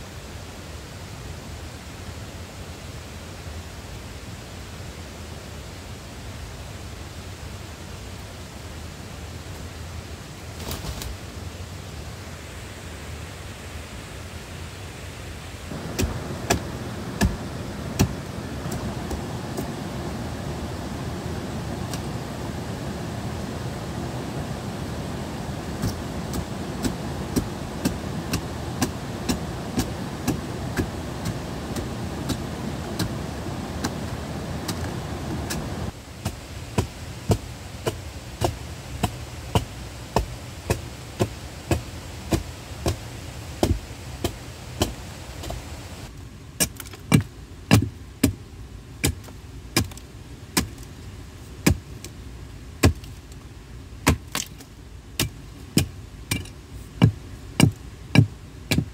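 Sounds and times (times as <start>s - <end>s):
steady rushing noise: 13.5s - 46.2s
tool knocking on wood: 15.9s - 17.4s.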